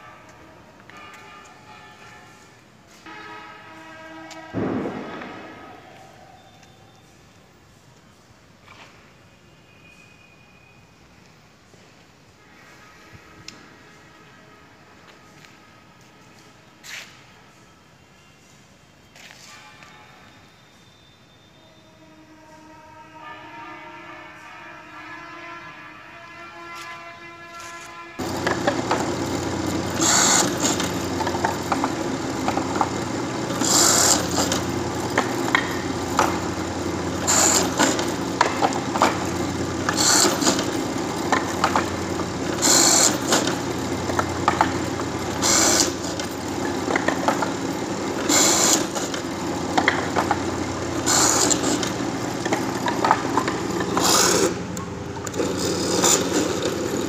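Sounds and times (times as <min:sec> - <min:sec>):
hissing cut: 0:28.2 - 0:56.7
woodworking machine motor humming: 0:28.2 - 0:57.0.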